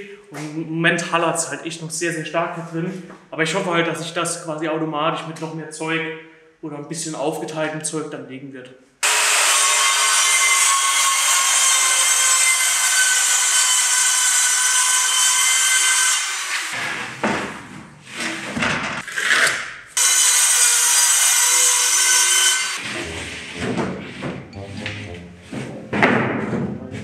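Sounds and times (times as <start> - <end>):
circular saw cutting: 9.0 - 16.9, 20.0 - 23.6
board knocks and scrapes: 16.8 - 19.6, 22.8 - 24.5, 25.4 - 27.0.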